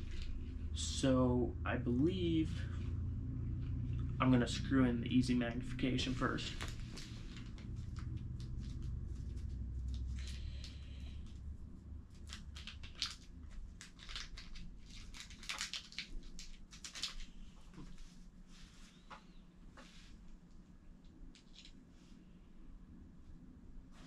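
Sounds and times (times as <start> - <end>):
low handling rumble: 0.0 - 12.7.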